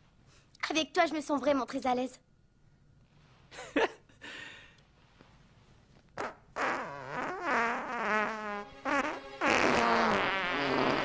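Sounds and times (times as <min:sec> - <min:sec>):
comic fart: 0:06.2 - 0:11.0.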